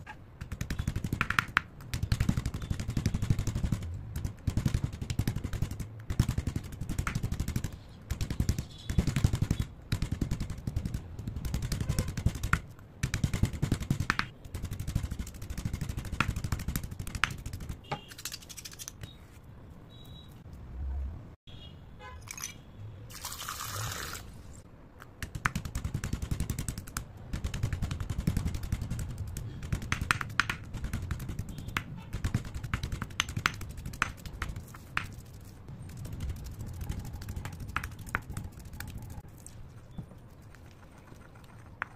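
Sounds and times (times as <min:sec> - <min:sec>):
pestle thuds: 0:25.2 - 0:35.1.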